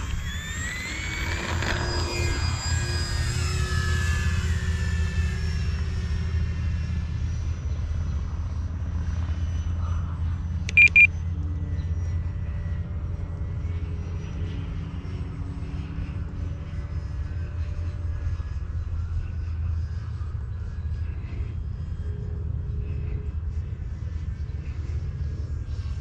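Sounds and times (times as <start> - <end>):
model airplane motor whining: 0.0 - 26.0
steady low rumble: 2.4 - 26.0
short beeps: 10.7 - 11.1.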